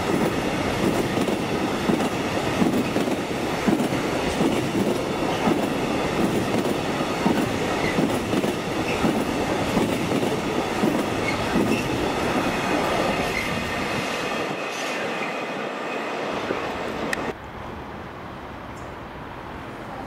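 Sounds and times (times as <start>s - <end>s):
train wheels clattering on rails: 0.0s - 15.7s.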